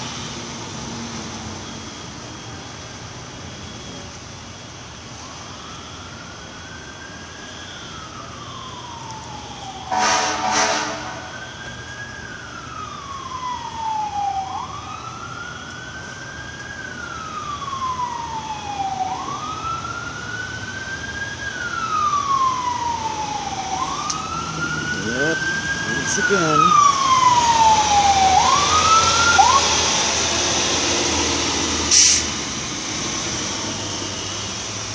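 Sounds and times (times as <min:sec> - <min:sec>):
emergency siren wailing: 0:00.0 - 0:34.9
loud horn blasts: 0:09.9 - 0:11.4.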